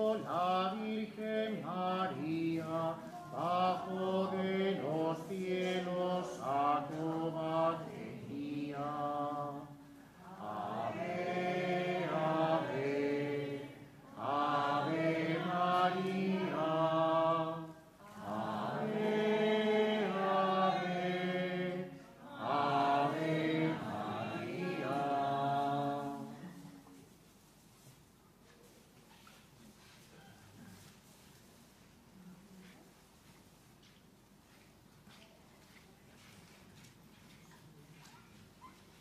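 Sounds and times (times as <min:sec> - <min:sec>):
man singing a hymn: 0:00.0 - 0:09.8.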